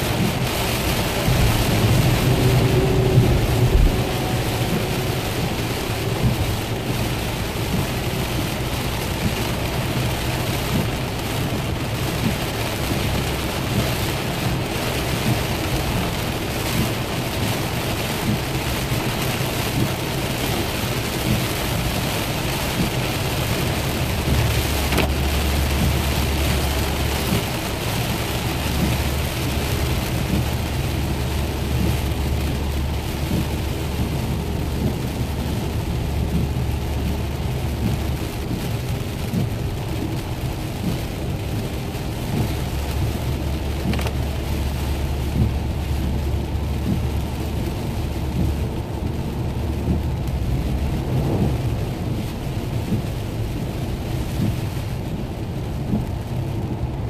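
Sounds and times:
deep low rumble: 0.0s - 57.0s
heavy rain on car windshield: 0.0s - 57.0s
tyre and road noise: 0.0s - 57.0s.

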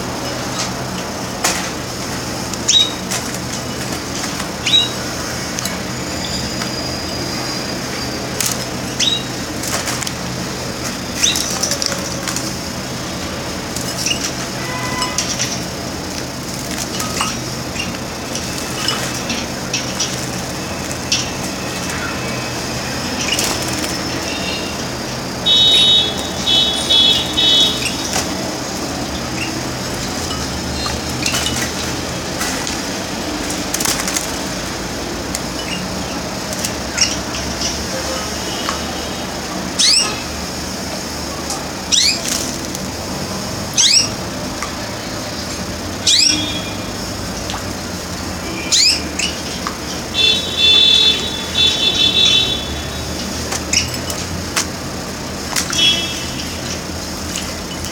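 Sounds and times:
canary chirping: 2.6s - 3.2s, 4.6s - 5.1s, 5.9s - 9.8s, 11.1s - 12.2s, 16.6s - 31.9s, 35.4s - 37.8s, 39.8s - 40.3s, 41.8s - 42.6s, 43.7s - 44.2s, 46.0s - 47.0s, 48.4s - 54.1s.

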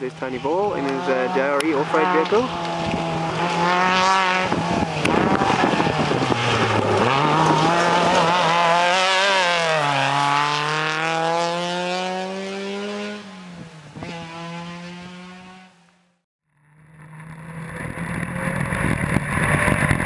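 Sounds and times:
buggy engine revving hard: 0.2s - 15.8s.

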